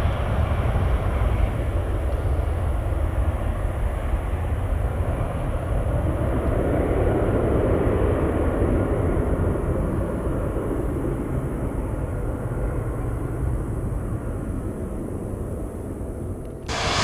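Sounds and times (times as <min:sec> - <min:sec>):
jet engines passing: 0:00.0 - 0:17.0
steady low rumble: 0:11.5 - 0:17.0.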